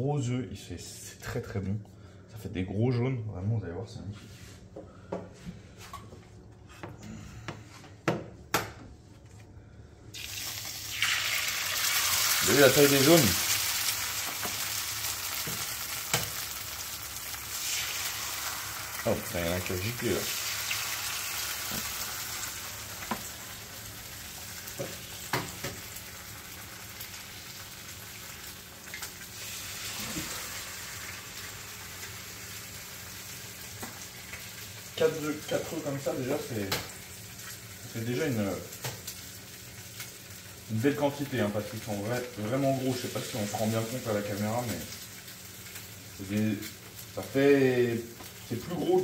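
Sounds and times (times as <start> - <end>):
egg sizzling in fat: 10.1 - 49.0.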